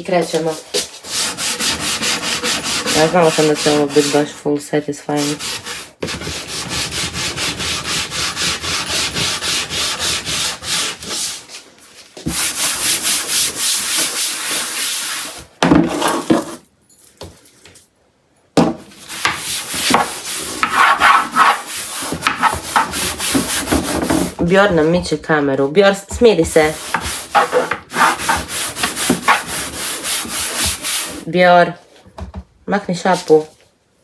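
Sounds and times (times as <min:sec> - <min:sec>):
brush scrubbing drawer: 0:00.1 - 0:04.5, 0:05.1 - 0:11.5, 0:19.1 - 0:24.6, 0:26.5 - 0:31.3.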